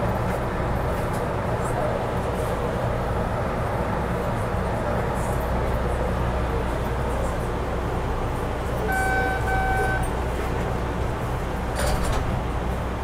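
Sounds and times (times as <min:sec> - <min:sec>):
subway train rumbling in tunnel: 0:00.0 - 0:13.0
train horn toots: 0:08.8 - 0:10.1.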